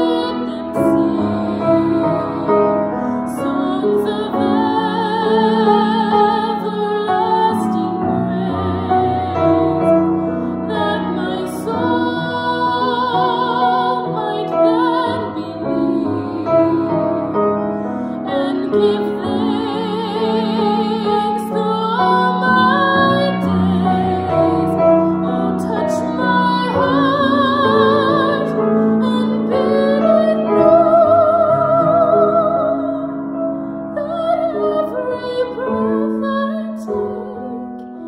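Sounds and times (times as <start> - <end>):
piano accompaniment: 0.0 - 38.0
woman singing slow solo: 0.0 - 38.0.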